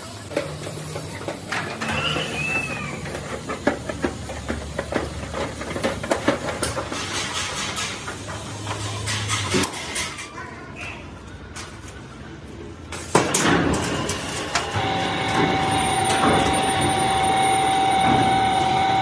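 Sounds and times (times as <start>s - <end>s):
shears snipping metal sheet: 6.0s - 10.3s.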